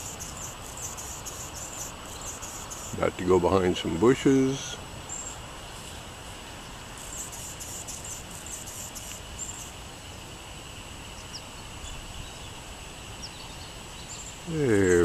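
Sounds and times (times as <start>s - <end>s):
high-pitched insect drone: 0.0s - 3.1s, 7.0s - 9.8s.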